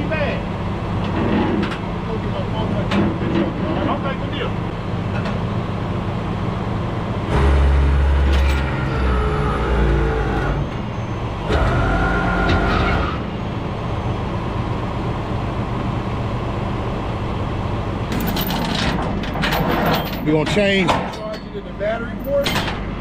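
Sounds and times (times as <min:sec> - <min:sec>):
engine whine: 0:00.0 - 0:23.0.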